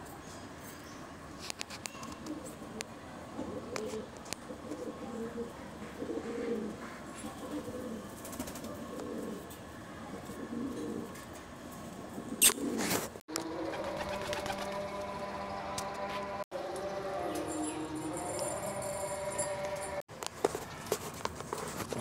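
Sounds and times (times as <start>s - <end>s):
pigeons cooing: 2.1s - 9.5s, 10.1s - 11.2s, 12.0s - 15.5s.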